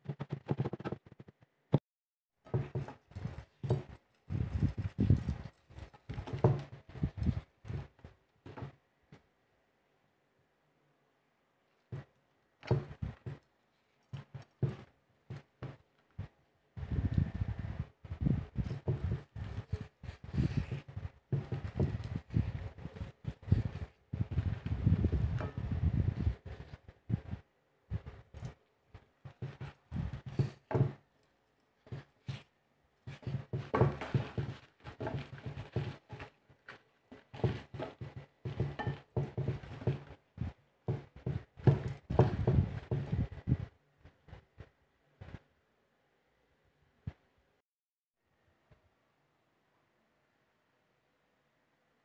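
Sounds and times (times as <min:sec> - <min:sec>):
hands handling eggplants: 0:18.1 - 0:43.6.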